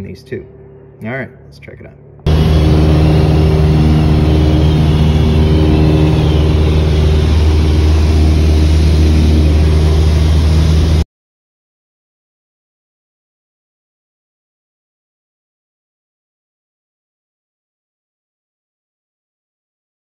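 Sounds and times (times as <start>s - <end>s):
light aircraft piston engine: 2.3s - 11.0s.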